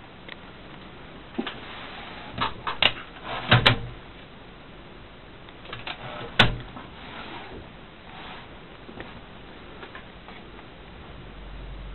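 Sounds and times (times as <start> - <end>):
typewriter knocks and clunks: 2.4 - 4.0, 5.7 - 6.7.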